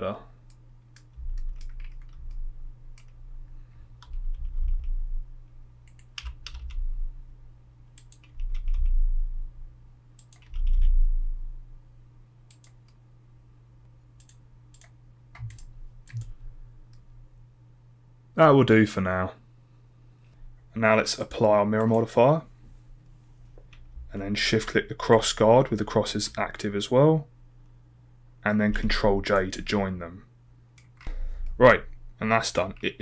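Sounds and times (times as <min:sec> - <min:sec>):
low hum: 0:00.1 - 0:18.4
keyboard and mouse clicking: 0:00.5 - 0:03.2, 0:05.8 - 0:06.8, 0:08.0 - 0:08.9, 0:10.2 - 0:10.9, 0:12.5 - 0:13.0, 0:14.2 - 0:17.0
dull low thumps: 0:01.2 - 0:02.8, 0:08.8 - 0:09.7, 0:10.8 - 0:11.6.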